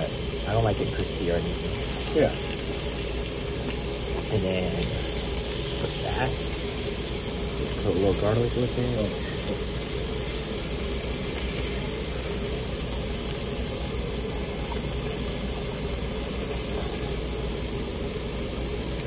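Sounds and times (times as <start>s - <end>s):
meat sizzling on grill: 0.0s - 19.0s
steady low hum: 0.0s - 19.0s.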